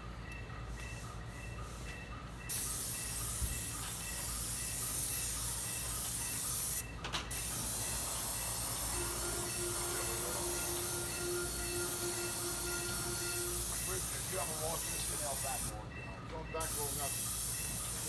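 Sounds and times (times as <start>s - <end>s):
paint spray gun hissing: 2.5s - 15.7s.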